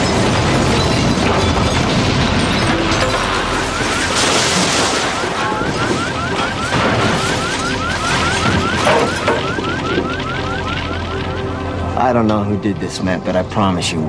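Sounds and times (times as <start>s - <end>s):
fire burning with clatter: 0.0s - 14.0s
alarm short rising tones: 3.4s - 11.9s.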